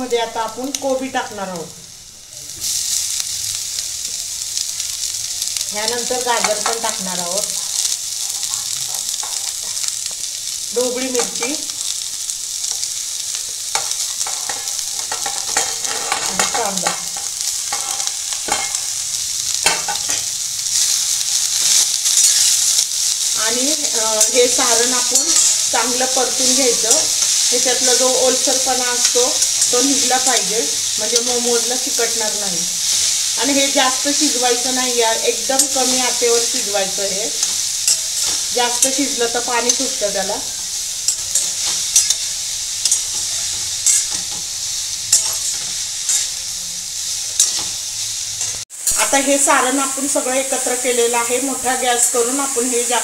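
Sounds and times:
vegetables sizzling in hot oil: 0:00.0 - 0:53.0
steel spatula scraping a pan: 0:13.7 - 0:18.9, 0:45.1 - 0:47.8.

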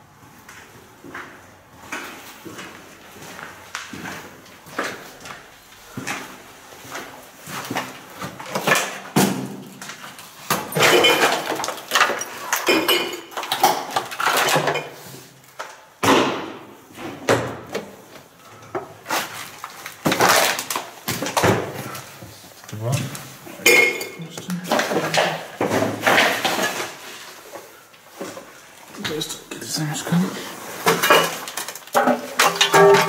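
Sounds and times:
footsteps over debris: 0:00.0 - 0:08.8.

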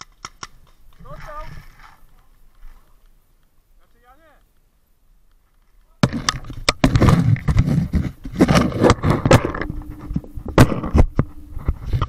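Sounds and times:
gear scraping against microphone: 0:06.3 - 0:12.0.

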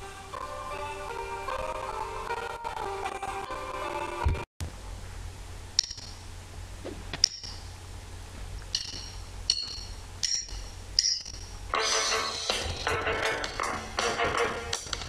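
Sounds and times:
low steady rumble: 0:04.6 - 0:14.0
bright metallic pings: 0:05.8 - 0:06.2, 0:08.7 - 0:11.4.

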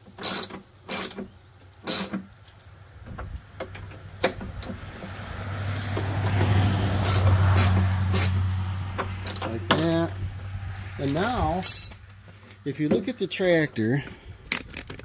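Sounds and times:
ratchet wrench clicking: 0:00.1 - 0:01.2, 0:01.8 - 0:02.2, 0:07.0 - 0:08.4, 0:09.2 - 0:09.5
motor vehicle approaching: 0:00.4 - 0:12.9.

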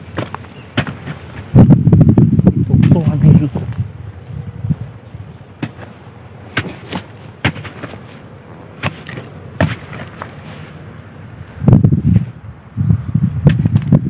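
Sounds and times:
digging blade chopping into clay: 0:00.2 - 0:01.2, 0:05.6 - 0:05.9, 0:06.5 - 0:08.2, 0:08.8 - 0:10.4.

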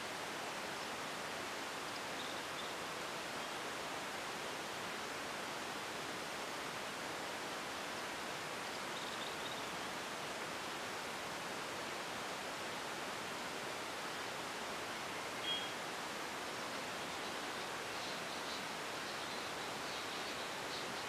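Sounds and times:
outdoor background hiss: 0:00.0 - 0:21.0
faint high chirps: 0:15.3 - 0:15.8.

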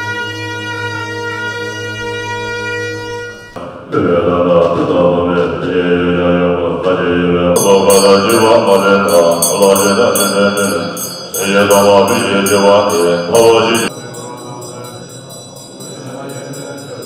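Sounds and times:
monks chanting in unison: 0:03.6 - 0:17.0
high ringing: 0:07.6 - 0:17.0.

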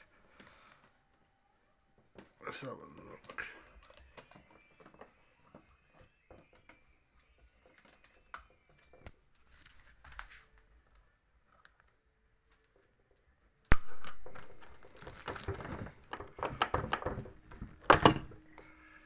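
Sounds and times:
paper rustling: 0:09.4 - 0:12.7, 0:13.7 - 0:17.9
plastic clicks: 0:13.7 - 0:18.6.

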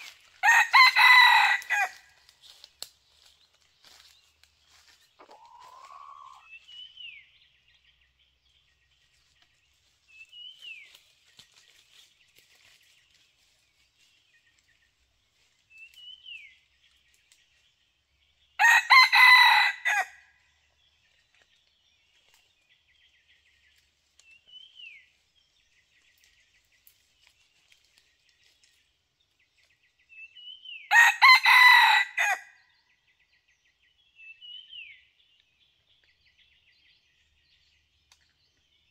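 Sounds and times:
rooster crowing: 0:00.4 - 0:02.0, 0:18.6 - 0:20.2, 0:30.9 - 0:32.5.

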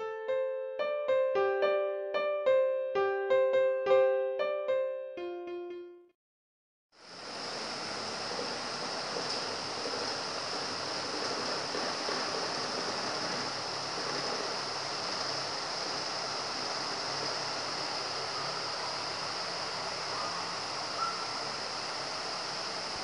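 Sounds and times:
rain falling steadily: 0:07.0 - 0:23.0.

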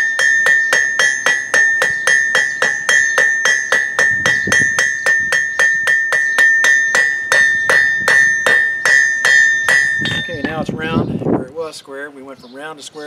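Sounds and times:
hammer striking steel on anvil: 0:00.0 - 0:10.7
anvil ringing: 0:00.0 - 0:10.8.

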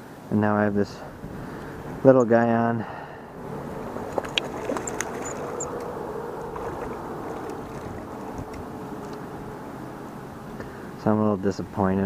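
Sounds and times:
hiss of wind and water: 0:00.0 - 0:12.0
fish splashing at water surface: 0:03.4 - 0:09.3.

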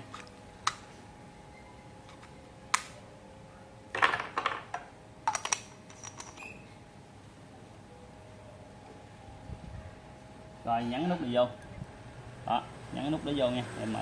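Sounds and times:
batteries clicking into compartment: 0:05.2 - 0:06.4.

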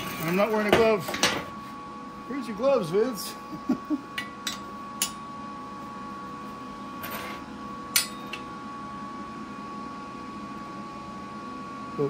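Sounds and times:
shop hum: 0:00.0 - 0:12.0.

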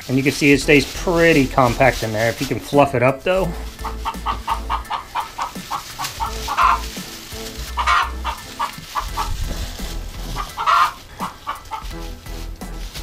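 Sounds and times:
chickens clucking: 0:00.0 - 0:13.0
loud chicken calls: 0:03.4 - 0:12.2.

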